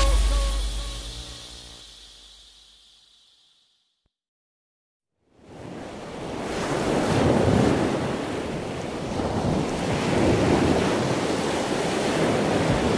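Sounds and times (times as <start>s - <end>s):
ocean waves rushing: 5.4s - 12.9s.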